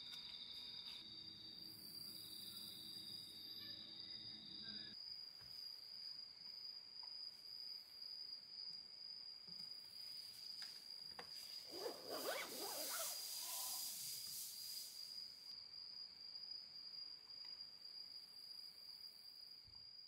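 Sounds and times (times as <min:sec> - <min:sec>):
crickets trilling: 0:00.0 - 0:20.0
tent zipper being pulled: 0:11.6 - 0:14.6.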